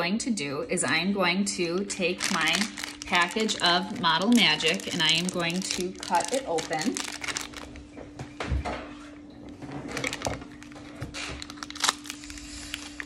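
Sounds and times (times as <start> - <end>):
plastic pouch crinkling: 1.8 - 7.8, 9.9 - 13.0.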